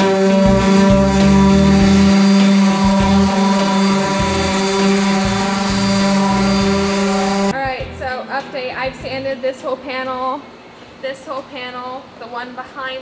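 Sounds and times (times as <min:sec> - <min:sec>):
electric sander on metal: 0:00.0 - 0:07.6
background music: 0:00.0 - 0:10.8.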